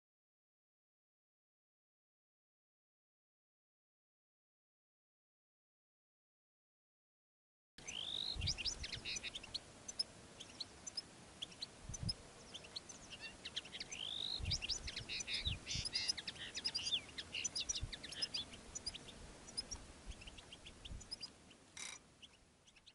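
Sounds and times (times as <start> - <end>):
goldfinch twittering song: 7.8 - 22.9.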